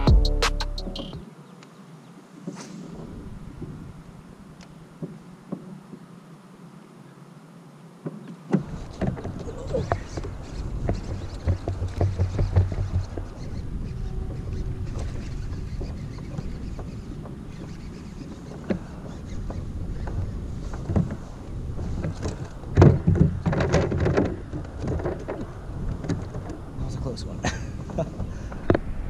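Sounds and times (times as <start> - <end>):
gear knocking on plastic hull: 8.5 - 14.4, 15.0 - 17.8, 19.4 - 26.7.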